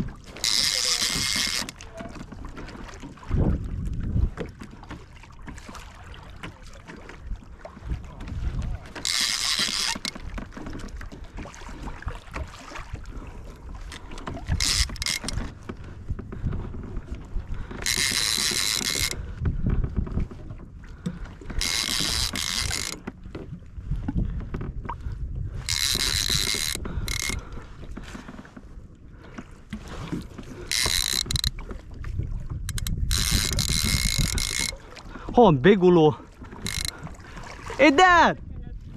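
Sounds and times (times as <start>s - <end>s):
low rumble of water and wind: 0.0s - 38.9s
fishing reel whirring: 0.4s - 1.8s, 9.0s - 10.2s, 14.4s - 15.4s, 17.8s - 19.2s, 21.6s - 23.0s, 25.6s - 27.4s, 30.7s - 31.5s, 32.7s - 34.8s, 36.6s - 37.0s.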